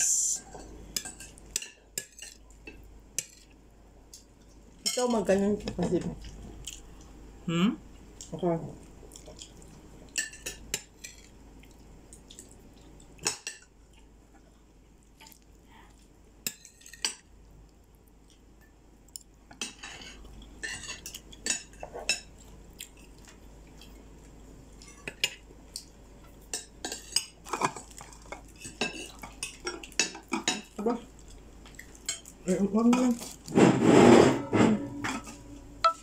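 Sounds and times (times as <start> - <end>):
cutlery clinking on plates: 19.5 - 22.3, 34.4 - 36.0.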